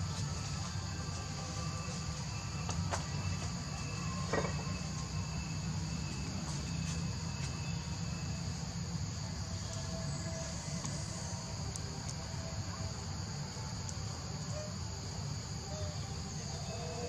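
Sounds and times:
high-pitched insect chorus: 0.0 - 17.0.

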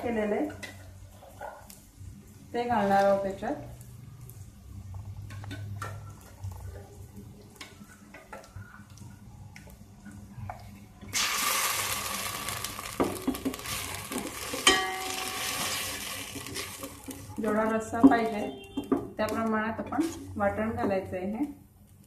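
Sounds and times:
paste sizzling in hot oil: 11.1 - 17.6.

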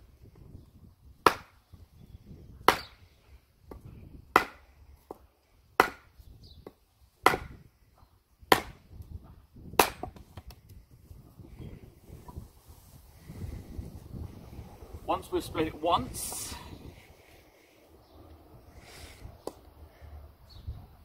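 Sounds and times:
wooden mallet striking axe head: 1.2 - 1.5, 2.7 - 3.0, 3.7 - 5.2, 5.8 - 7.6, 8.5 - 8.8, 9.8 - 10.5.

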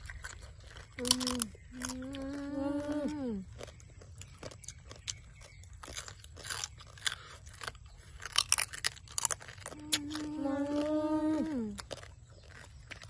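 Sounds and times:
crunching fried crabs: 0.0 - 13.0
person humming mmm: 1.0 - 3.6, 9.7 - 11.9.

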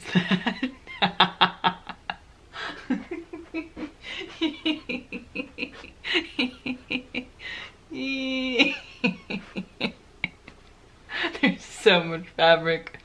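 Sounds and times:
woman laughing hard: 0.0 - 10.6
breathy gasps: 7.4 - 7.8.

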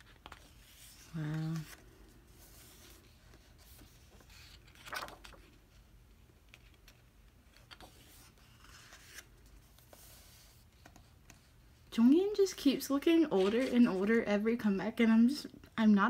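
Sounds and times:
page being turned: 0.0 - 5.6, 6.5 - 10.9
paper rustling: 0.0 - 11.5, 12.8 - 14.3.

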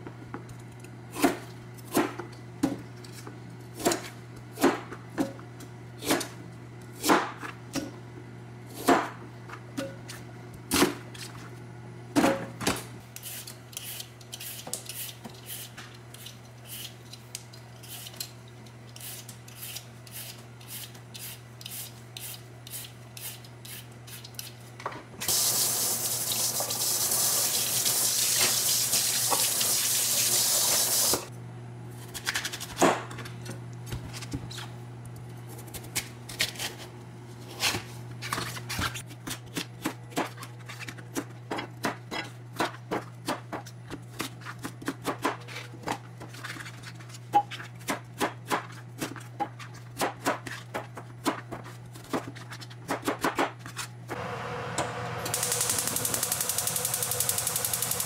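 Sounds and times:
knife chopping on cutting board: 7.0 - 7.9
vegetable peeler scraping: 13.2 - 17.2, 17.8 - 18.3, 18.9 - 24.6
tap running: 25.3 - 31.3, 54.2 - 58.0.

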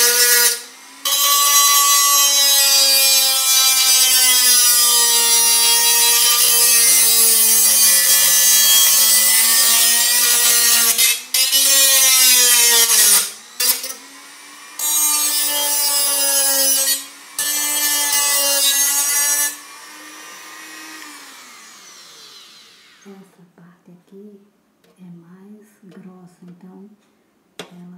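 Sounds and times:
cutting disc grinding metal: 0.0 - 23.0
rotary tool motor whine: 16.7 - 23.0.

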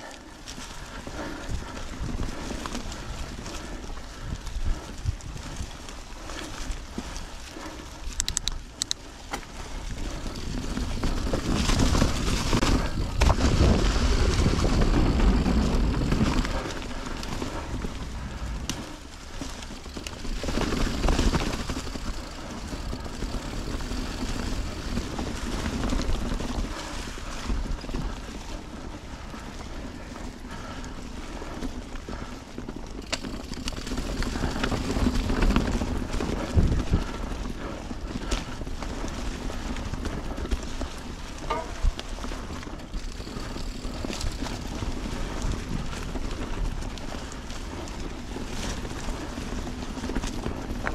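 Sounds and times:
bike tyres rumbling on dirt: 0.0 - 50.9
sharp clicks and rattles: 8.1 - 9.1
wind on microphone: 9.8 - 18.9.

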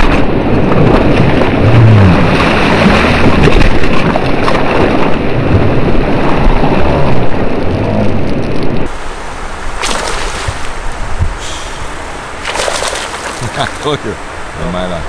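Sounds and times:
wind on microphone: 0.0 - 9.0, 9.7 - 13.6
churning water: 0.0 - 15.0.

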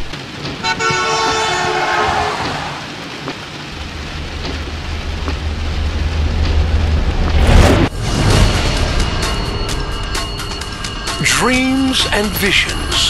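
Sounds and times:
heavy rain hiss: 0.0 - 13.0
vehicle horn: 0.6 - 2.7
deep rumble: 3.7 - 11.1.

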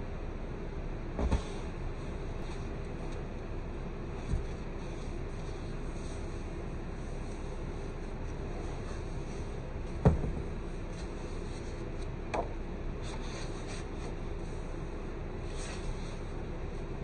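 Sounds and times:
background hum: 0.0 - 17.0
thump: 10.0 - 10.5.

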